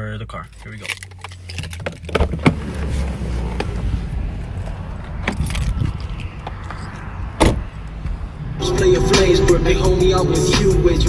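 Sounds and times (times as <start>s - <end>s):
phone rustling and rumbling: 0.4s - 7.2s.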